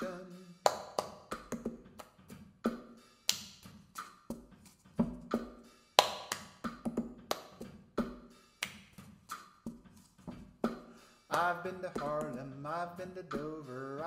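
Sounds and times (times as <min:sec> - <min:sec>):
hand claps: 0:00.6 - 0:02.3, 0:03.2 - 0:04.4, 0:05.3 - 0:09.7, 0:10.7 - 0:12.4.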